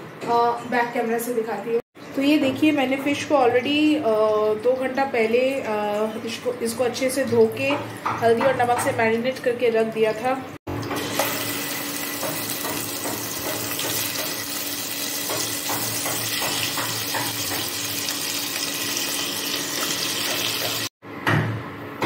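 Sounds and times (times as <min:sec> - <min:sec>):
fish sizzling in hot oil: 0:10.9 - 0:20.9.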